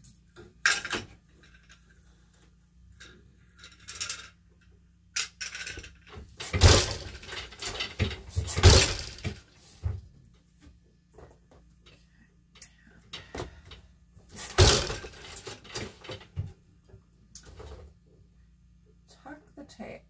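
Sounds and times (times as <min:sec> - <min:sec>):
loom shuttle clattering: 0:03.0 - 0:09.5, 0:14.4 - 0:16.4
loom beater thudding: 0:05.4 - 0:10.1, 0:14.3 - 0:16.5.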